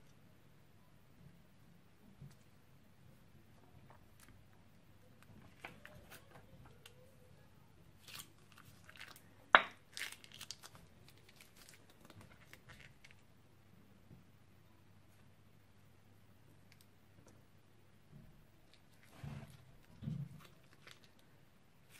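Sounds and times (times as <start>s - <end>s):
plastic bag crinkling: 8.0s - 13.2s, 18.7s - 21.3s.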